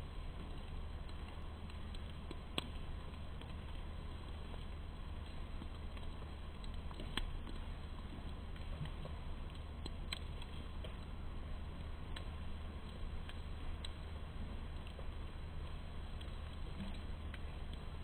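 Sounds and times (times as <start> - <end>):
low hum: 0.0 - 18.0
sharp ticks: 9.5 - 11.0.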